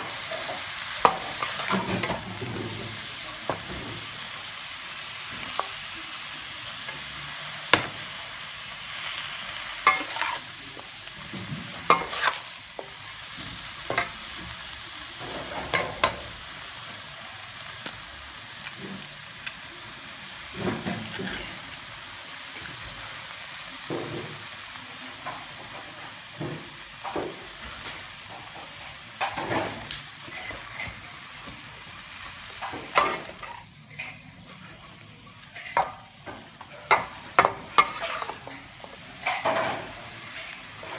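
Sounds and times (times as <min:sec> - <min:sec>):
food sizzling in a wok: 0:00.0 - 0:40.9
spatula scraping a wok: 0:08.9 - 0:14.4, 0:20.6 - 0:21.7, 0:28.5 - 0:31.0, 0:32.5 - 0:40.9.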